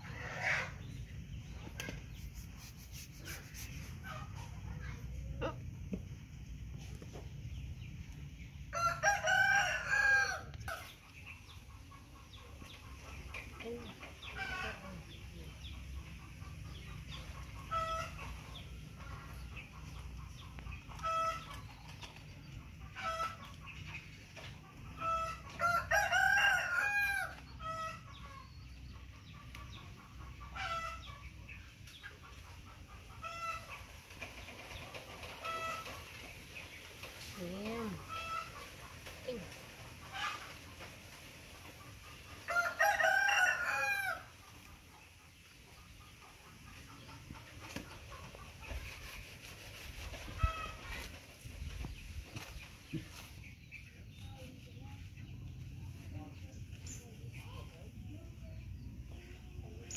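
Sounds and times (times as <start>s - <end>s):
rooster crowing: 8.7s - 10.5s, 25.6s - 27.4s, 42.5s - 44.3s.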